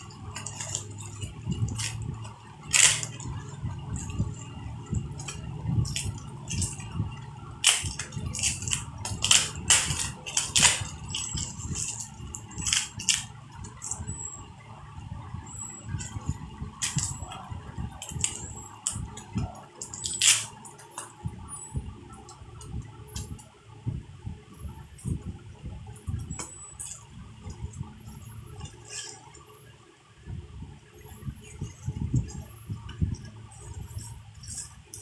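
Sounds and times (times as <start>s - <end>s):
bubble wrap crinkling: 0.0s - 14.0s, 15.9s - 21.1s.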